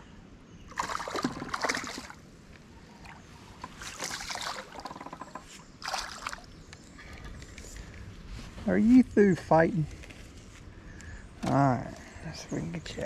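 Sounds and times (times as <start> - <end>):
fish splashing in water: 0.7 - 2.2, 3.8 - 5.1, 5.8 - 6.6.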